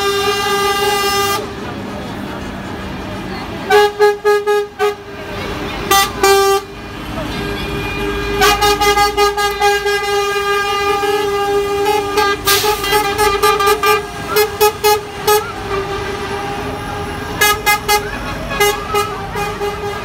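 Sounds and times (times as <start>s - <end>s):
lorry air horns: 7.6s - 20.0s.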